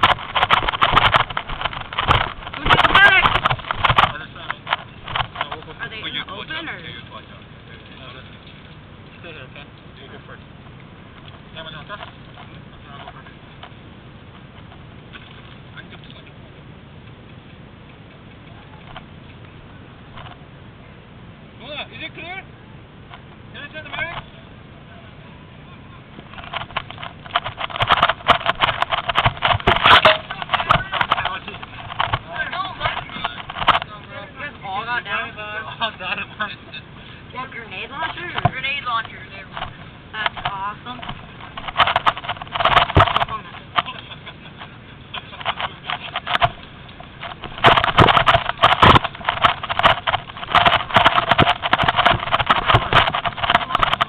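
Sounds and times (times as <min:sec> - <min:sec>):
twigs snapping and foliage rustling: 0:45.4 - 0:54.0.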